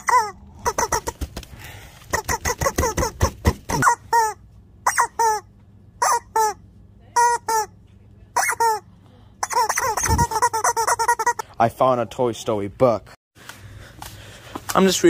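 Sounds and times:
rubber chicken toy squawking: 0.0s - 1.4s, 2.1s - 6.6s, 7.2s - 11.6s.

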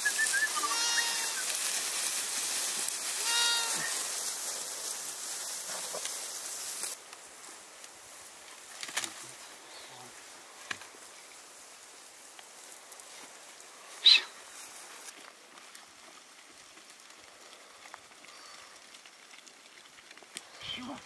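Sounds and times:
loud steady hiss: 0.0s - 15.2s
sheep bleating: 0.5s - 1.4s, 3.2s - 4.0s.

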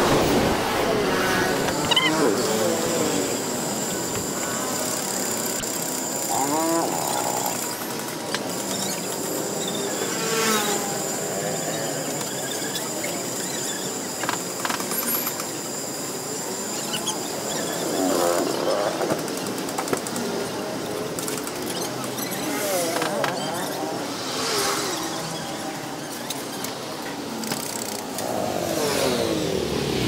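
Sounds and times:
motorbike engines passing: 0.0s - 12.8s, 20.0s - 30.0s
steady high whine: 0.0s - 30.0s
street traffic: 0.0s - 30.0s.

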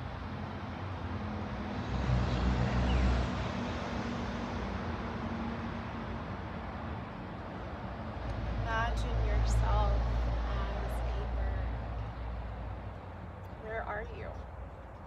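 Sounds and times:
steady traffic noise: 0.0s - 15.0s
vehicle passing: 0.0s - 15.0s.

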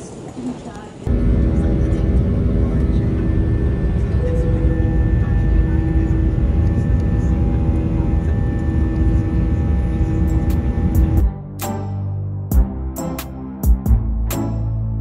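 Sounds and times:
jet engines roaring in cabin: 0.0s - 11.3s
music: 10.4s - 15.0s.

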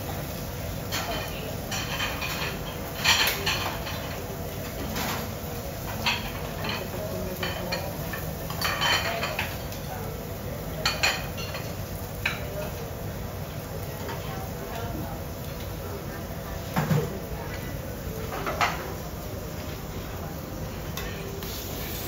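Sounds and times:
utensils clinking on dishes: 0.9s - 9.7s, 10.8s - 12.8s.

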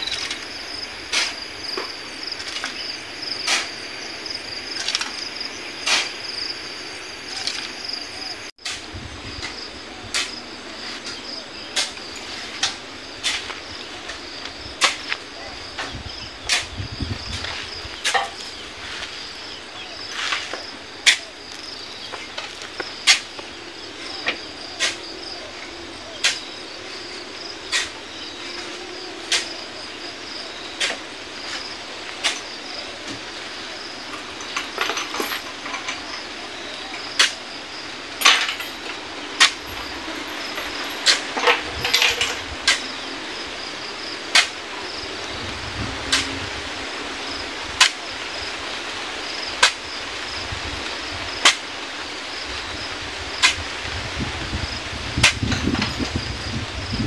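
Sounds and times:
shovel scraping sand: 0.0s - 3.8s, 4.7s - 6.4s, 8.6s - 15.3s, 16.4s - 23.5s, 27.7s - 29.9s
insect chirring: 0.0s - 57.0s.

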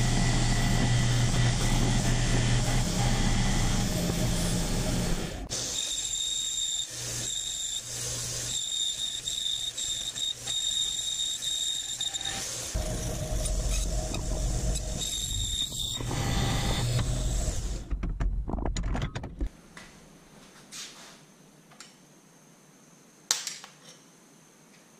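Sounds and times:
low motor hum: 0.0s - 5.5s, 12.8s - 18.0s
power tool squealing cutting metal: 0.0s - 17.7s.

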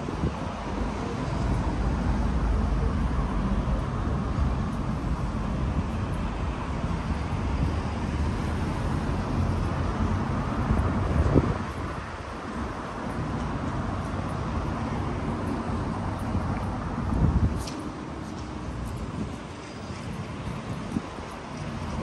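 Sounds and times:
rumble of passing cars: 0.0s - 22.0s.

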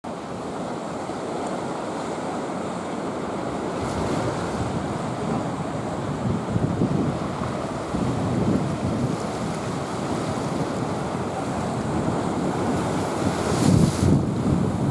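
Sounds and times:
sea water sloshing and lapping: 0.2s - 14.9s
wind buffeting microphone: 3.7s - 14.9s.

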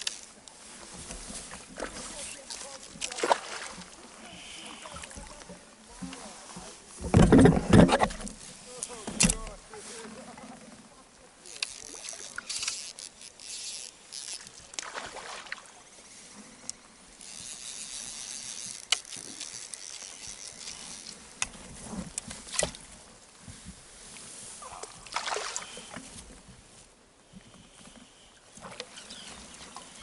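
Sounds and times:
fishing reel drag buzzing: 0.0s - 0.4s, 4.1s - 5.4s, 11.4s - 14.8s, 15.6s - 22.5s, 25.4s - 26.0s, 27.3s - 30.0s
reel clicks: 0.0s - 6.3s, 7.0s - 9.6s, 11.4s - 22.9s, 27.3s - 30.0s
swishes of line or water: 0.0s - 6.8s, 13.7s - 16.3s, 23.8s - 26.1s.

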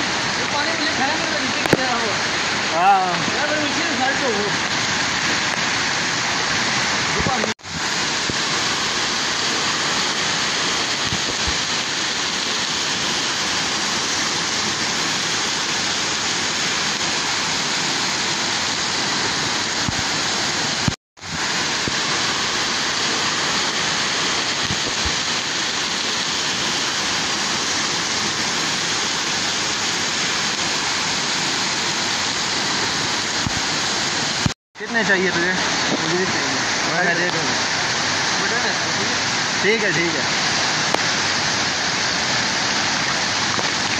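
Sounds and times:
stream rushing over rocks: 0.0s - 43.9s
waterfall rushing: 0.0s - 43.9s.

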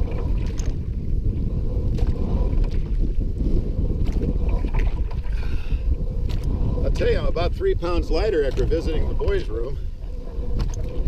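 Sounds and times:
faint ticks from boat and water: 0.0s - 11.0s
wind buffeting microphone: 0.0s - 11.0s.

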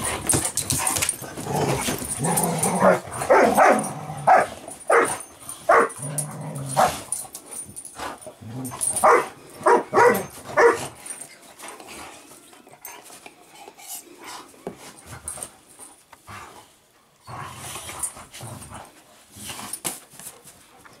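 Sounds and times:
dogs growling: 0.9s - 4.8s, 5.9s - 7.3s, 8.1s - 9.0s.

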